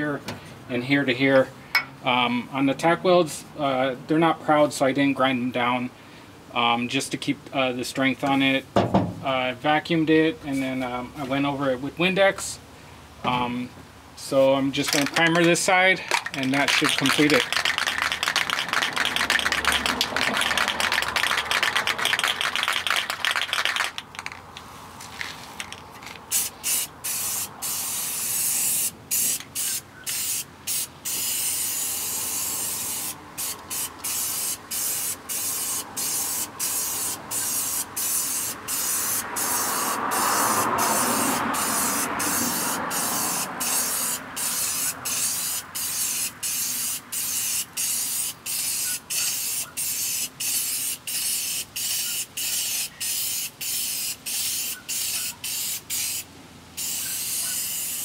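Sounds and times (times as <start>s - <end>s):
aerosol can ball rattling: 14.8s - 24.6s, 25.2s - 27.4s
aerosol spray hissing: 26.3s - 58.0s.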